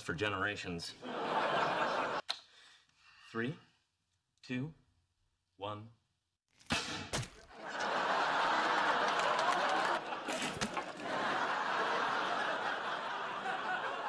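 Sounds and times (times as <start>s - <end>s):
studio audience laughing: 1.0s - 2.2s, 7.5s - 14.0s.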